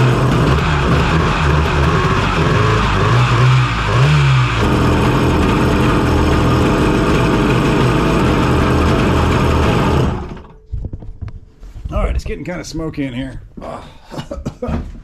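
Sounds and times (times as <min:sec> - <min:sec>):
two-stroke engine running: 0:00.0 - 0:10.4.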